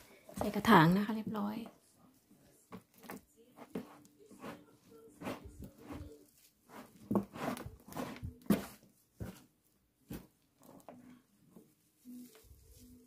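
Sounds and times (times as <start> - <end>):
gloved hand scraping soil: 4.3 - 9.4.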